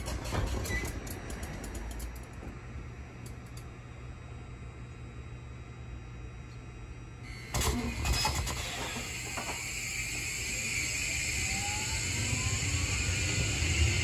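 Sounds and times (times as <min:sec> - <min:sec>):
train running noise: 0:00.0 - 0:02.6, 0:07.5 - 0:14.0
electric train inverter whine: 0:00.0 - 0:14.0.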